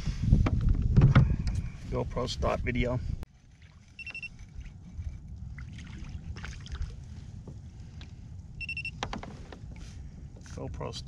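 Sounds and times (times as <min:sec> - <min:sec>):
wind rumble on camera: 0:00.0 - 0:11.0
fishing tackle ticks and rustles: 0:03.3 - 0:05.6, 0:06.9 - 0:11.0.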